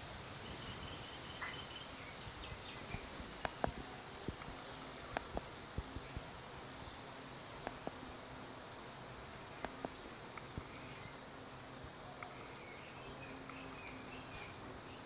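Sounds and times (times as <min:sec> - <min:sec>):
faint high bird chirps: 0:00.4 - 0:03.1, 0:12.0 - 0:15.0.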